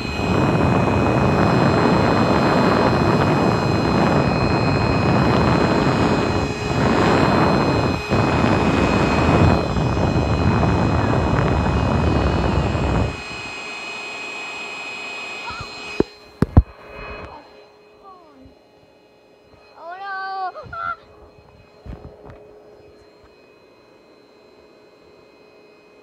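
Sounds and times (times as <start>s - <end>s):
air mattress pump running: 0.0s - 26.0s.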